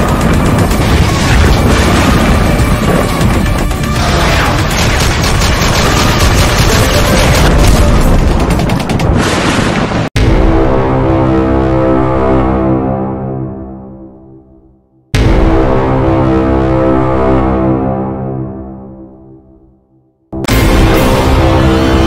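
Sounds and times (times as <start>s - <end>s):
music: 0.0s - 9.2s, 10.2s - 22.0s
rapid gunfire: 0.0s - 9.8s
booms: 0.0s - 10.7s.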